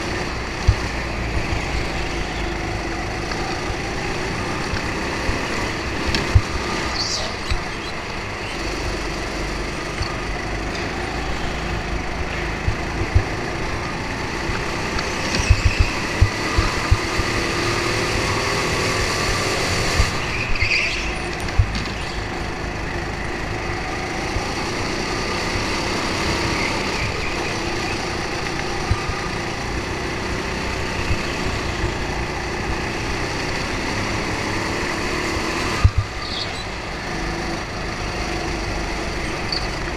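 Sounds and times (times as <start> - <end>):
go-kart engine running: 0.0 - 39.9
short low thumps: 12.2 - 14.0.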